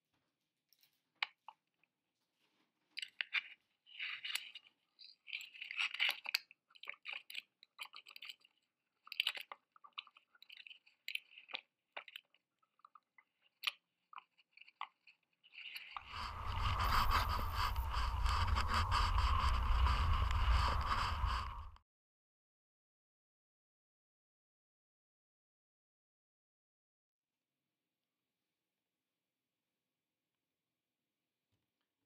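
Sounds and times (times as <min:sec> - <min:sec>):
payload crackling and scraping: 0:15.7 - 0:21.8.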